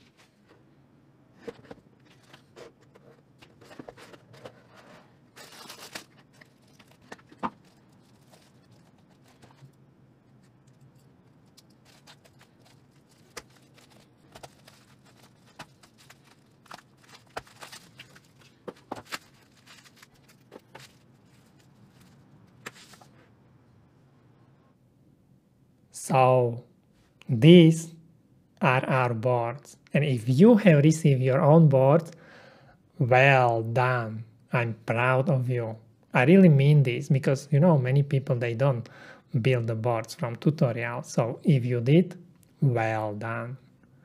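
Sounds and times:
cardboard rustling: 1.3s - 9.8s, 10.4s - 23.2s
bubble-wrap bag rustling: 4.8s - 9.6s, 11.7s - 22.2s.

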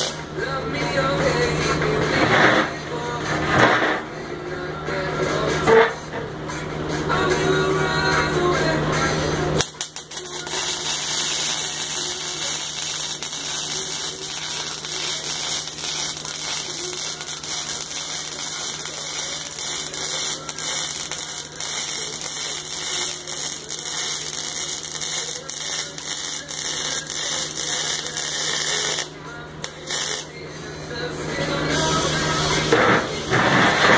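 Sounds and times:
welding arc crackling: 0.0s - 0.2s, 9.6s - 30.4s, 31.4s - 33.9s.

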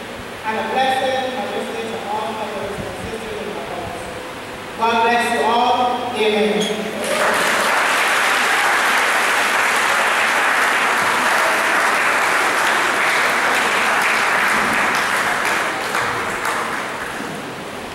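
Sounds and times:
congregation applauding: 7.0s - 17.9s.

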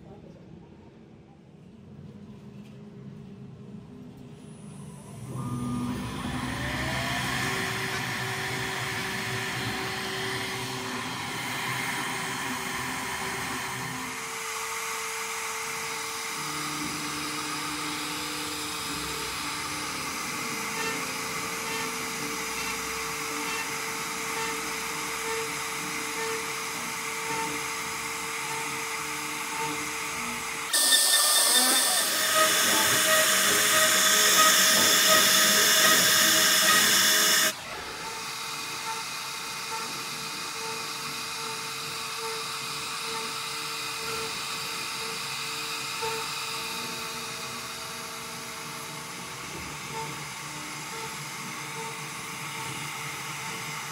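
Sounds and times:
router spindle whining: 4.9s - 53.9s
loud hissing cutting noise: 29.4s - 47.3s.

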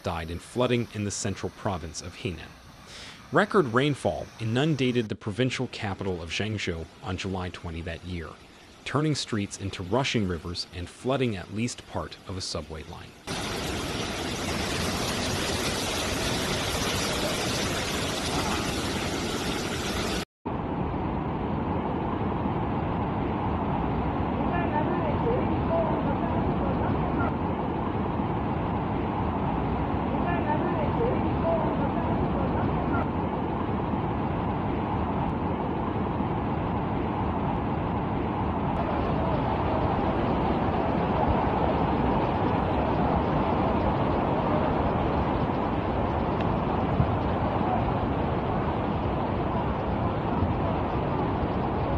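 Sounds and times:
floodwater rushing: 5.8s - 20.2s, 28.7s - 51.9s.

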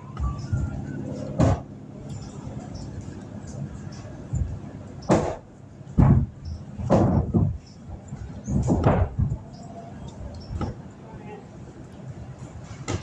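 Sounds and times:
loud thumps: 1.4s - 1.7s, 4.3s - 7.7s, 8.5s - 9.4s.

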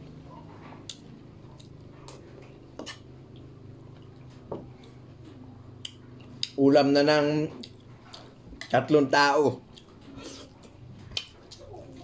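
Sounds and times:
steady low hum: 0.0s - 12.0s
chewing with wet mouth noises: 0.2s - 6.7s, 7.3s - 12.0s.

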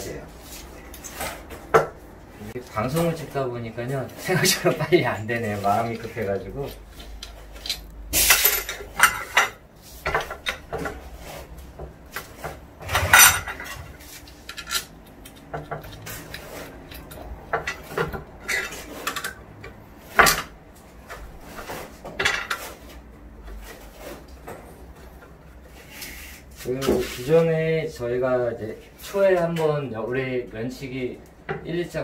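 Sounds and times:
metal parts clinking and scraping: 5.2s - 9.6s, 12.8s - 19.4s.

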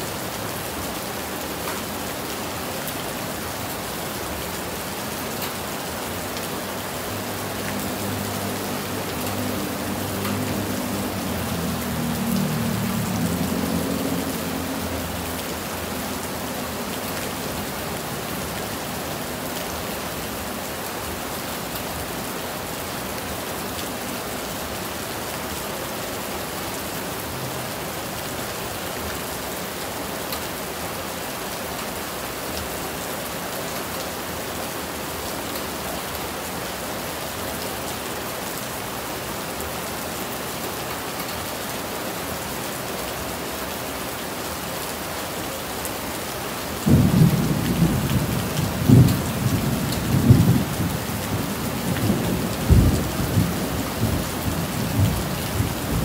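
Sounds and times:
steady rain: 0.0s - 56.0s
thunder rumbling: 46.9s - 56.0s.

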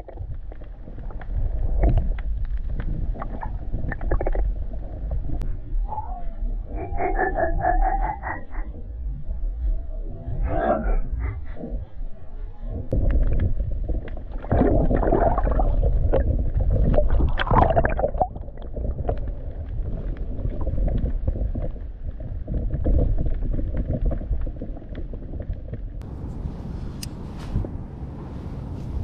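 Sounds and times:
water above surface: 0.0s - 5.8s, 6.7s - 29.0s
muffled underwater rushing water: 0.0s - 29.0s
wind: 0.0s - 29.0s.

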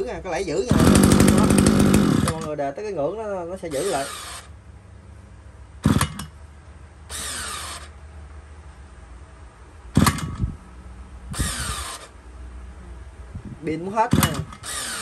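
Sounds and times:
electric starter motor whirring: 0.7s - 2.5s, 3.7s - 4.5s, 7.1s - 8.0s, 11.3s - 12.2s, 14.2s - 15.0s.

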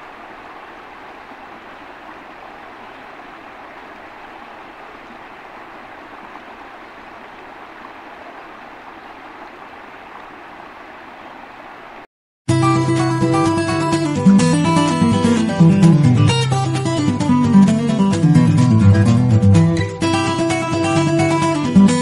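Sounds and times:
stream rushing over rocks: 0.0s - 12.1s.

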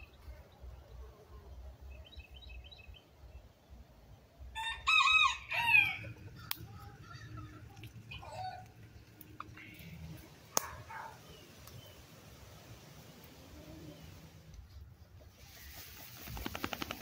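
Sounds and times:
rooster crowing: 4.6s - 6.2s.

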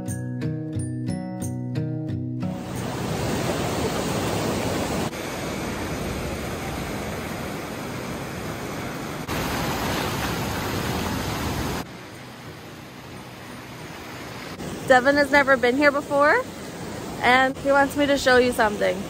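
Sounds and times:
surf breaking on beach: 2.6s - 11.9s.

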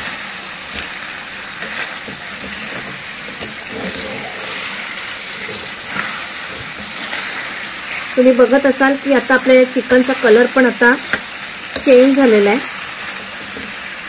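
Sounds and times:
chicken sizzling in hot oil: 0.0s - 14.0s
steel spoon scraping a pan: 1.6s - 8.4s, 9.8s - 12.3s.

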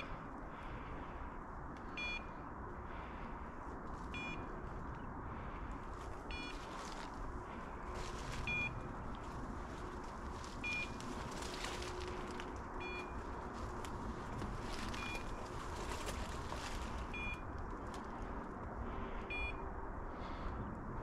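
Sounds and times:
short electronic beeps: 6.3s - 6.5s, 17.2s - 17.4s, 19.3s - 19.6s.

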